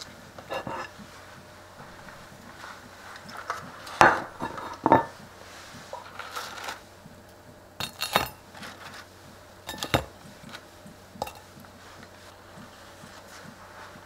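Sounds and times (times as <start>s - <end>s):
ceramic plate clinking on stone: 9.7s - 10.1s, 11.2s - 11.5s.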